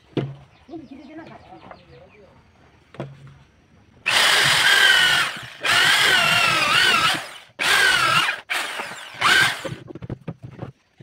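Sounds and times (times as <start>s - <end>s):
electric drill into wood: 4.1s - 9.8s.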